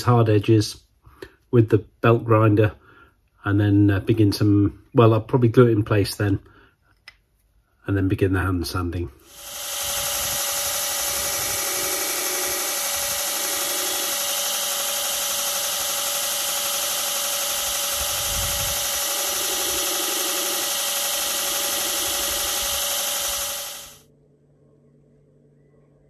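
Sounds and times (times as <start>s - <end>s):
belt grinder motor whine: 9.2s - 24.0s
wood block grinding on belt: 9.3s - 24.0s.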